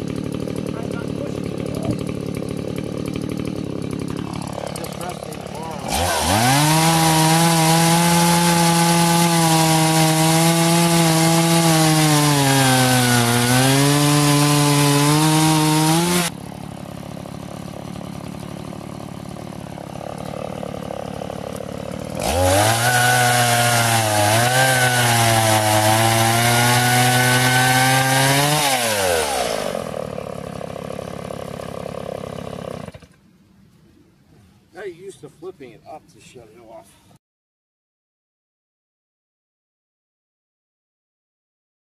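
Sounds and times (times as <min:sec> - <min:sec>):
chainsaw cutting log: 0:00.0 - 0:33.2.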